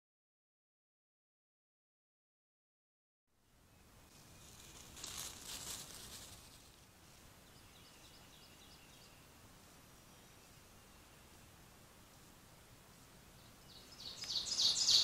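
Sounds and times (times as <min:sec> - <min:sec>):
microphone hiss: 0:03.3 - 0:15.0
rustling noise: 0:04.1 - 0:06.9.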